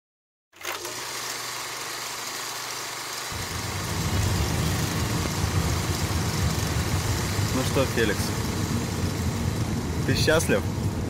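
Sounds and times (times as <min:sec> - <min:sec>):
road noise hiss in car cabin: 0:03.0 - 0:11.0
low engine hum: 0:03.3 - 0:11.0
loud low rumble: 0:03.4 - 0:11.0.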